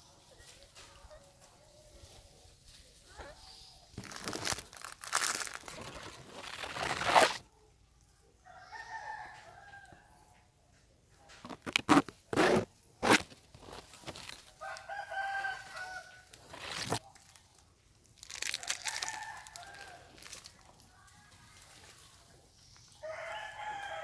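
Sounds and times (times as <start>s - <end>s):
close rustling: 0.4s - 7.4s, 11.3s - 17.6s
rooster crowing: 8.5s - 10.0s, 14.6s - 16.4s, 18.6s - 20.1s, 23.0s - 24.0s.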